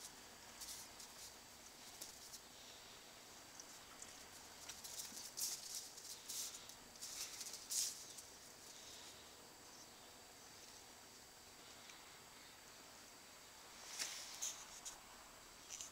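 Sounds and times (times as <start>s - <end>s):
puppy scuffling on tiled floor: 0.6s - 2.4s, 3.6s - 8.4s.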